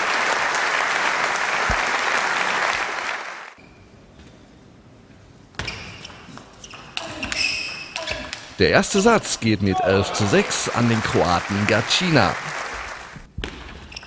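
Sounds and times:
crowd applause: 0.0s - 3.6s, 8.6s - 13.3s.

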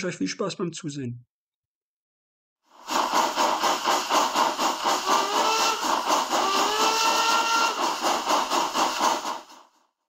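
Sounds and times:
steam locomotive chuffing: 2.7s - 9.8s.

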